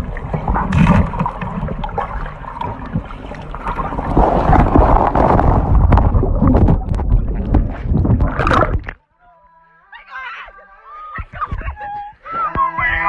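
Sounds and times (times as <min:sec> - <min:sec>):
low rumble: 0:00.0 - 0:09.0
underwater gurgling and knocking: 0:00.0 - 0:09.0.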